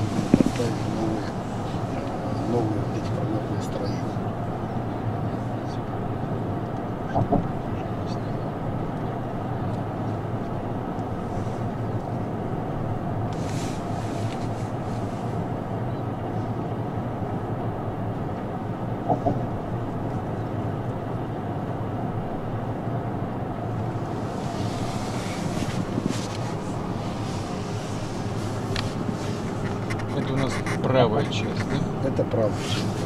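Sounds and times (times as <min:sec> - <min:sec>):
car road and engine noise: 0:00.0 - 0:33.0.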